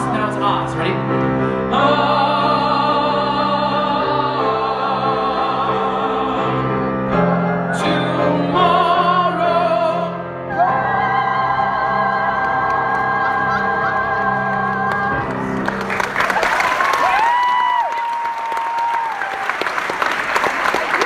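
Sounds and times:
man singing with vibrato: 0.0s - 6.9s, 7.7s - 11.0s
piano accompaniment: 0.0s - 17.6s.

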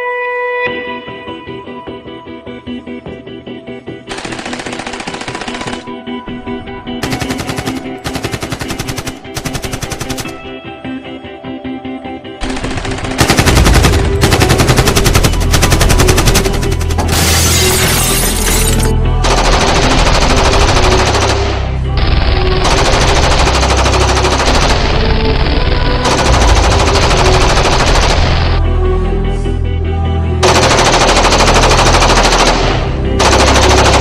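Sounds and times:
background music: 0.0s - 34.0s
machine-gun fire: 4.1s - 6.0s, 7.0s - 10.4s, 12.4s - 18.6s, 19.3s - 21.6s, 22.5s - 25.4s, 26.1s - 28.6s, 30.4s - 34.0s.

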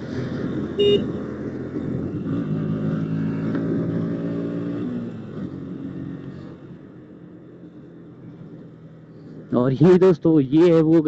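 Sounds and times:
short horn beep: 0.8s - 1.1s.

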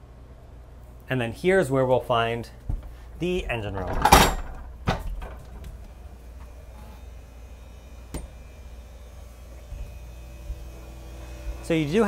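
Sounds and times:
steady low hum: 0.0s - 12.0s
heavy door opening clunk: 3.8s - 5.7s.

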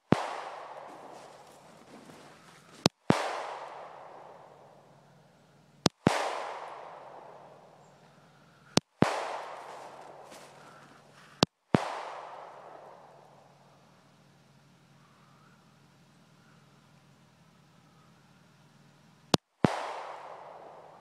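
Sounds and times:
pistol shots echoing: 0.0s - 5.3s, 5.9s - 13.3s, 19.6s - 21.0s.

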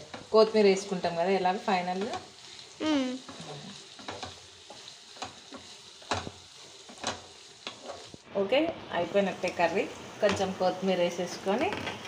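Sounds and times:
frying sizzle: 0.0s - 12.0s
spatula scraping and knocking pan: 3.3s - 8.1s.

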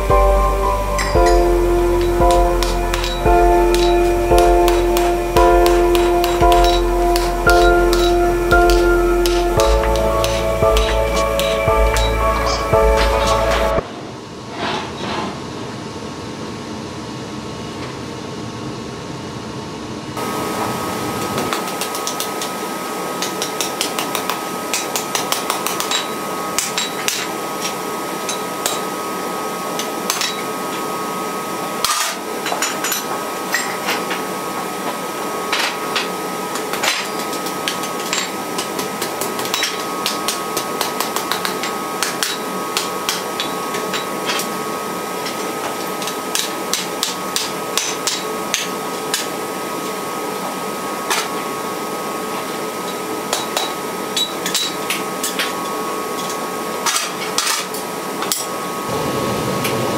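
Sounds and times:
hammer striking steel on anvil: 0.0s - 13.8s
steady background hum: 0.0s - 59.9s.

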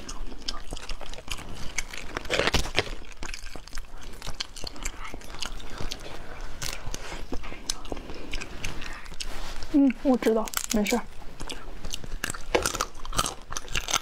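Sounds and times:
crab shell cracking and crunching: 0.0s - 6.0s, 10.4s - 14.0s
chewing and sucking: 0.0s - 14.0s.

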